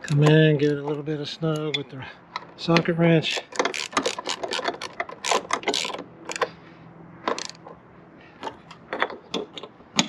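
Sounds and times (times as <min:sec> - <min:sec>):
ratchet wrench clicking: 0:03.3 - 0:06.5, 0:07.3 - 0:07.6.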